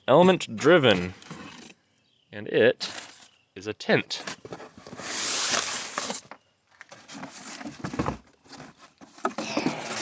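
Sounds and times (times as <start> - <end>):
cardboard rustling and scraping: 0.8 - 1.8, 2.8 - 3.4, 4.2 - 10.0
packing tape tearing: 5.0 - 6.2.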